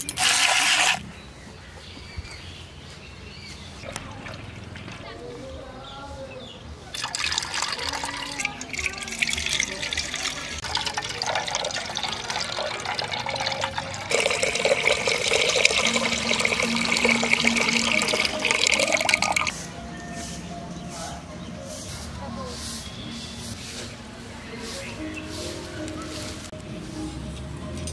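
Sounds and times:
milk pouring into metal pot: 0.0 - 1.0, 6.9 - 19.5.

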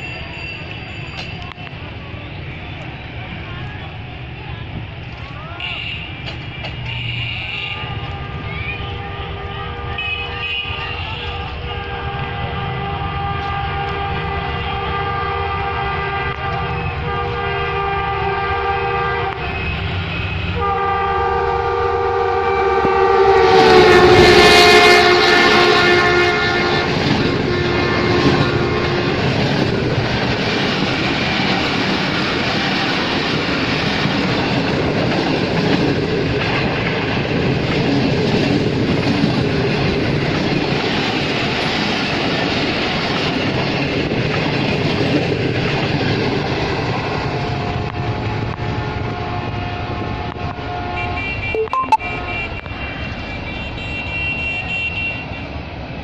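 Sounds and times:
locomotive horn blasts: 5.6 - 29.2, 47.5 - 55.4
train wheels clattering on rails: 26.6 - 50.7.

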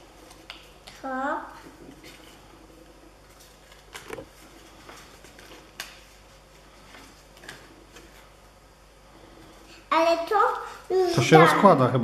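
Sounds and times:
paper leaflet rustling: 3.2 - 8.4.

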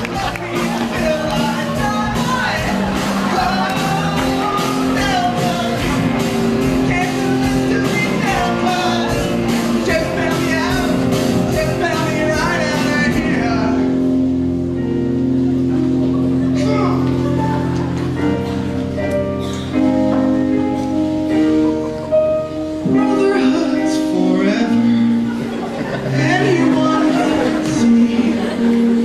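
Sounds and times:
drum beat: 0.0 - 13.4
rock song with singing: 0.0 - 20.6, 22.8 - 29.0.

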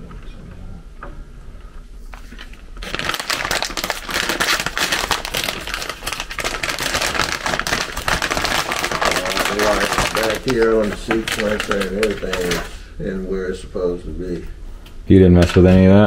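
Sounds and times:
crackling rustling on microphone: 1.7 - 12.8.

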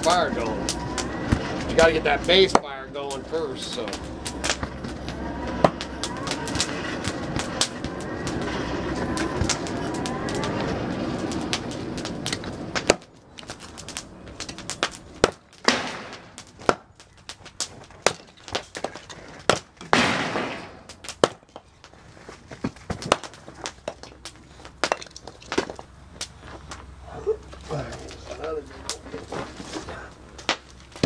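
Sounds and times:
steady rushing air: 0.0 - 16.6
wood splitting crackle: 0.0 - 31.0.

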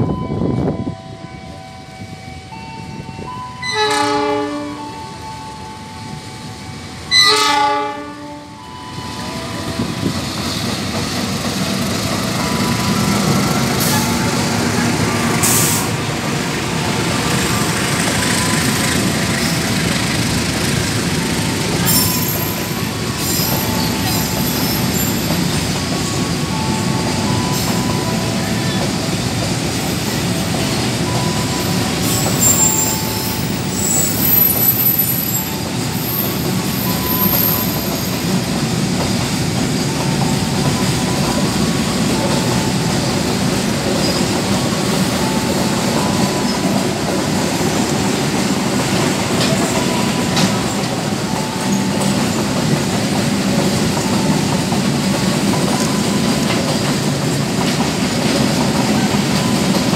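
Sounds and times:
train rolling on rails: 0.0 - 59.9
locomotive horn blasts: 3.6 - 5.2, 7.1 - 8.6
wheel squeals: 21.2 - 28.8, 30.4 - 38.4, 43.8 - 44.5.

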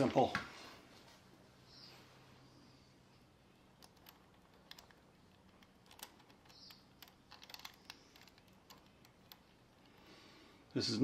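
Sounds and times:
small metallic clicks: 3.7 - 10.1.

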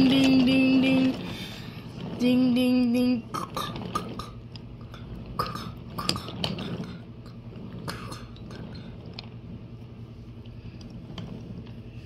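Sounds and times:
toy train clicks and clacks: 0.0 - 1.3, 2.0 - 9.3
low steady hum: 0.0 - 12.0.

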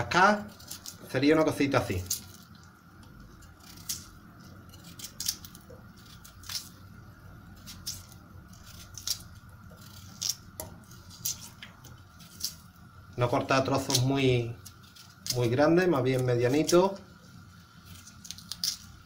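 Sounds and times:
knife cutting raw potato: 0.0 - 17.0, 17.8 - 19.0.

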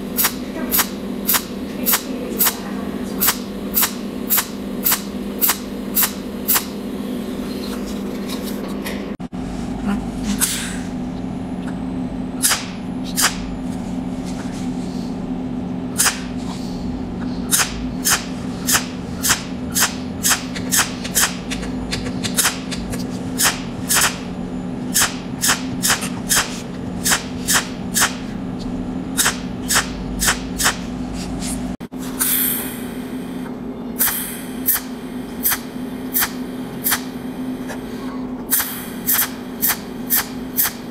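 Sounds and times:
steady low hum: 0.0 - 40.9
welding arc crackling snaps: 0.1 - 2.6, 3.2 - 6.8, 16.0 - 16.3, 17.5 - 21.6, 22.2 - 24.3, 25.0 - 28.3, 29.2 - 30.8, 34.0 - 37.2, 38.5 - 40.9.

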